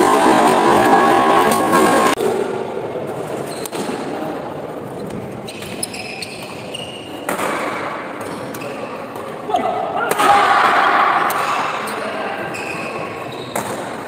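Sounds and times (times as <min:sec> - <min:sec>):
sports hall murmur: 0:00.0 - 0:14.0
shoes squeaking on court: 0:05.1 - 0:07.3, 0:12.5 - 0:13.9.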